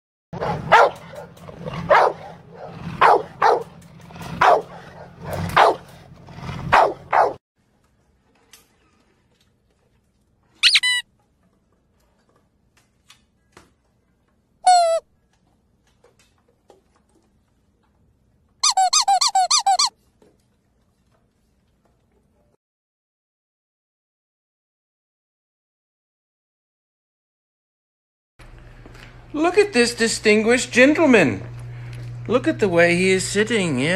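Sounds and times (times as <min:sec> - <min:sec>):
puppy squeaking whimpers: 0:10.6 - 0:11.0, 0:14.7 - 0:15.0, 0:18.6 - 0:19.9.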